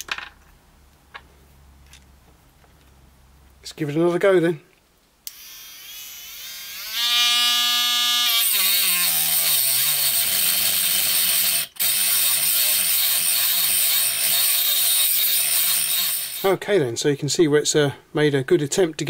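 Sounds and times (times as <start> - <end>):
micro grinder whining: 5.3 - 16.5
grinding disc cutting steel: 8.3 - 16.5.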